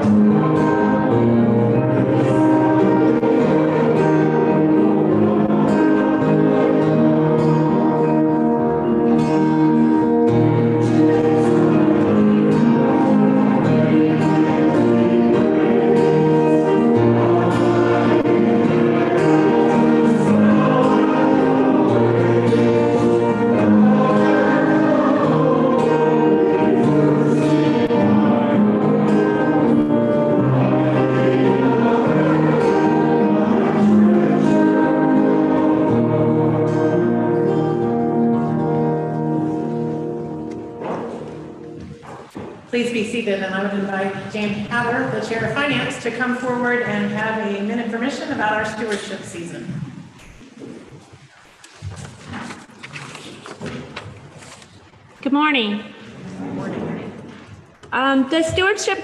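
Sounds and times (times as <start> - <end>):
church choir singing a hymn: 0.0 - 42.3
held accompaniment notes: 0.0 - 52.1.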